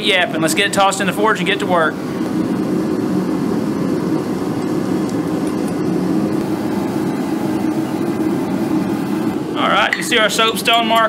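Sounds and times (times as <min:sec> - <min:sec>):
gas forge burners rushing: 0:00.0 - 0:11.0.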